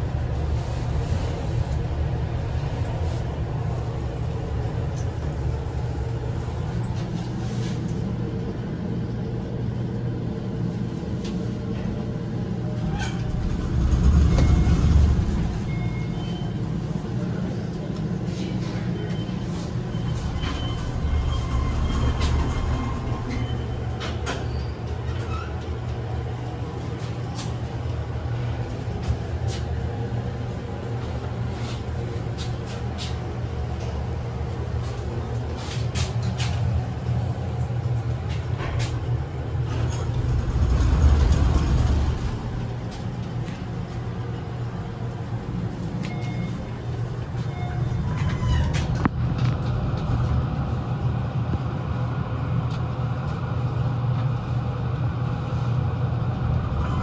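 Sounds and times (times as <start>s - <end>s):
elevator low hum: 0.0s - 57.0s
elevator door sliding: 11.6s - 31.0s, 31.7s - 50.5s, 56.1s - 57.0s
low rumble: 12.4s - 16.8s, 39.1s - 46.8s
brief tones: 46.0s - 46.7s.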